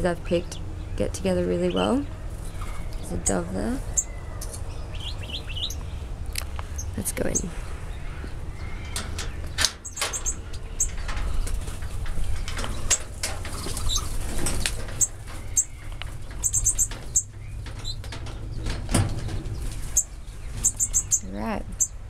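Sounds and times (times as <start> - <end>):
finches chirping: 0.0 - 14.2, 14.9 - 18.5, 19.3 - 22.0
birds flapping wings: 10.9 - 20.8.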